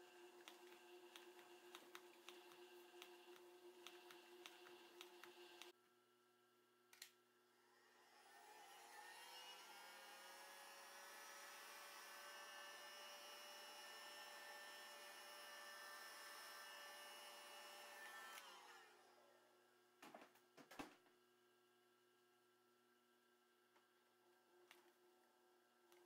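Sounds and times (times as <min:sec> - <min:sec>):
sewing machine motor whine: 0:07.9 - 0:19.3.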